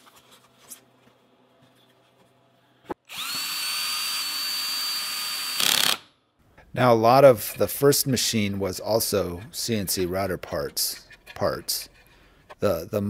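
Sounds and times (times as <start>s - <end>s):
cordless drill whining: 3.1s - 6.0s
handling of parts: 10.6s - 12.7s.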